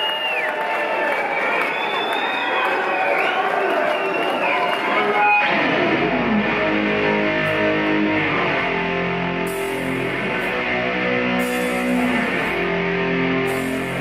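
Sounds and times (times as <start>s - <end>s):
heavy metal band playing live: 5.0s - 14.0s.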